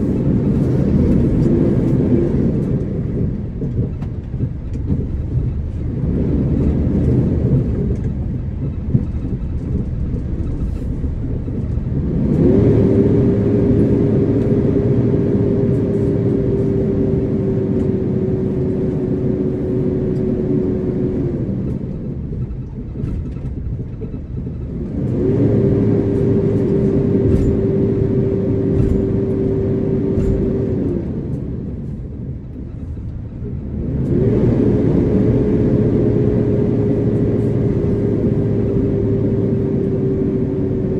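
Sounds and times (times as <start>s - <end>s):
engine and road rumble: 0.0s - 40.9s
rising whine: 6.0s - 22.7s.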